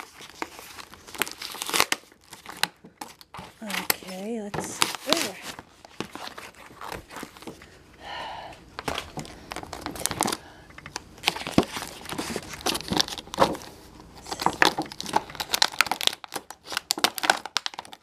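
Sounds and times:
cardboard tearing: 0.0s - 7.5s, 11.2s - 18.0s
plastic packaging crinkling: 0.0s - 7.8s, 8.8s - 18.0s.

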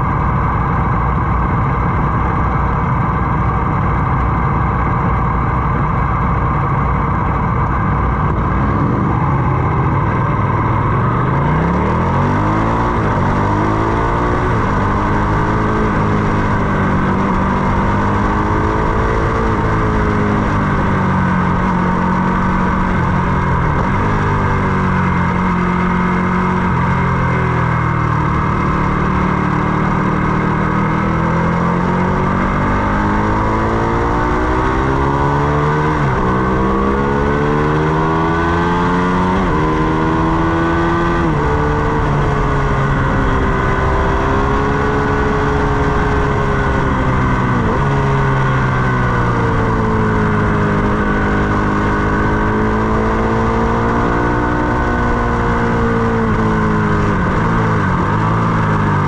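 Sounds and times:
motorcycle engine revving: 0.0s - 59.0s
steady rushing noise: 0.0s - 59.0s.

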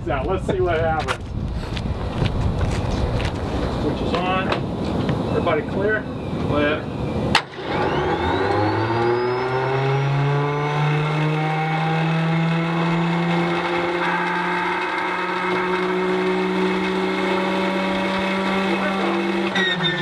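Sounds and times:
engine starter whine: 7.3s - 20.0s.

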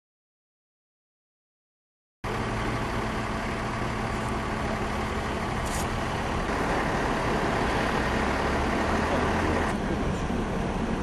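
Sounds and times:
vehicle engine running: 2.2s - 11.0s.

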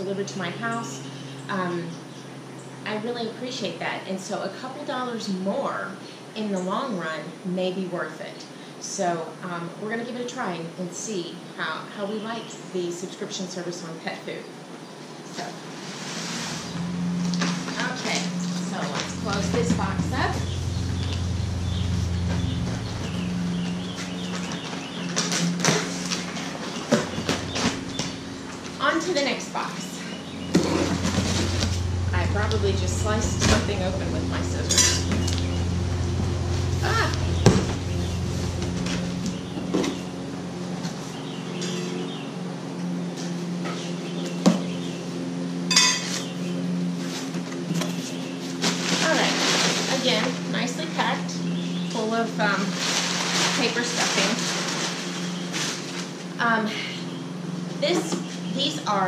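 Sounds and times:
cardboard scraping and rustling: 15.8s - 28.8s, 30.5s - 32.1s, 47.0s - 50.3s
lawnmower engine running: 15.8s - 59.0s
low hum: 16.2s - 59.0s.

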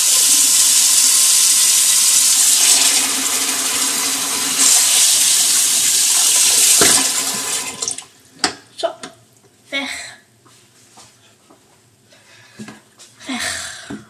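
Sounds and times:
water running from a tap: 0.0s - 8.1s.

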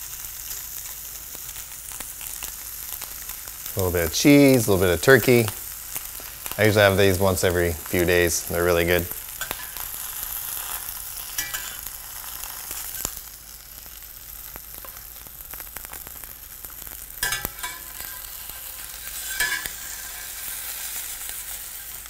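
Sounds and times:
food sizzling in a skillet: 0.0s - 22.0s
metal spatula scraping a pan: 9.4s - 13.2s, 17.2s - 22.0s.

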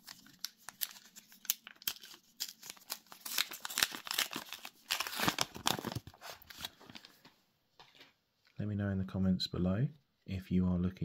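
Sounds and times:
wrapper crinkling and tearing: 0.0s - 7.1s.

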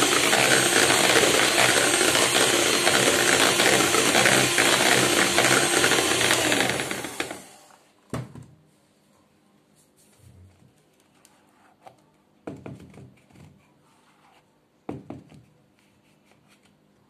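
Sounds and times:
electric hand mixer whipping cream: 0.0s - 7.7s
knock: 14.9s - 15.4s.

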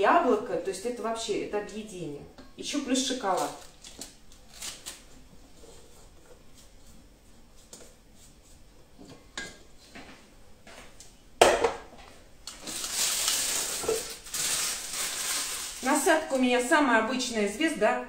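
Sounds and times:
plastic piping bag rustling: 3.0s - 7.0s, 12.5s - 16.8s
kitchenware knock: 11.4s - 11.9s.

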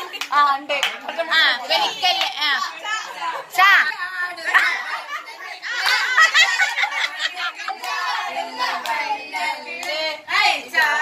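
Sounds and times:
hands clapping along: 0.0s - 1.1s, 8.8s - 9.1s, 9.8s - 10.1s, 10.7s - 11.0s
voices singing together: 1.3s - 11.0s.

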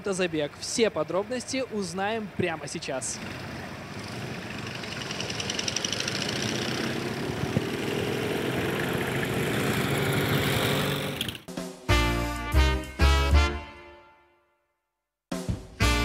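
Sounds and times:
motorcycle engines pulling away: 0.4s - 11.5s.

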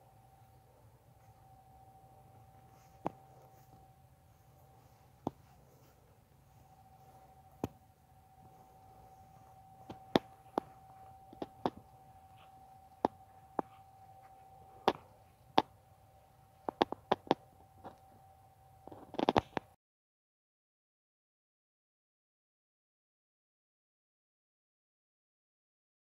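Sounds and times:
faint high hum: 0.0s - 19.8s
sharp clicks and taps: 9.8s - 11.9s, 12.9s - 13.8s, 14.8s - 15.7s, 16.6s - 18.0s.

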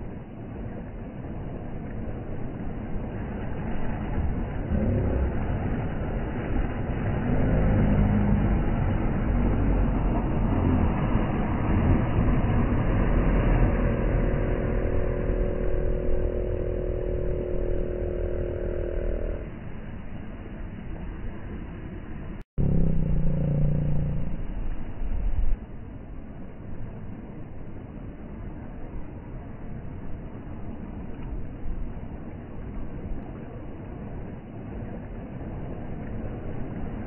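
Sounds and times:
small waves washing on shore: 0.0s - 22.4s, 23.3s - 37.0s
steady hum: 2.0s - 25.7s
outboard motor running: 3.1s - 19.6s, 22.6s - 25.2s.

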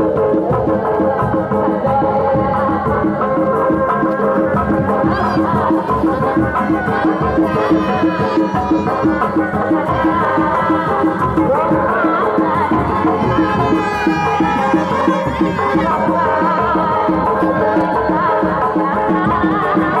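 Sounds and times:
drums beating quick rhythm: 0.0s - 20.0s
wavering melody: 5.1s - 18.0s.

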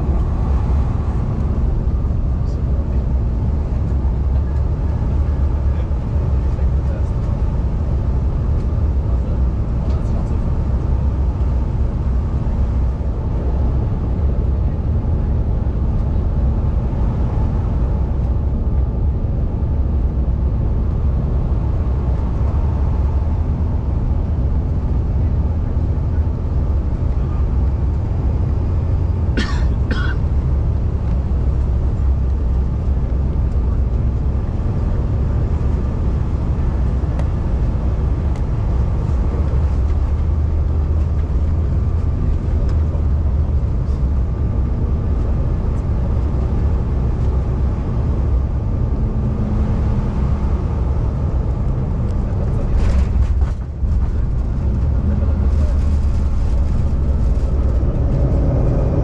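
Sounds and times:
jet engine and airflow rumble: 0.0s - 59.0s
passenger coughing: 29.3s - 30.3s.

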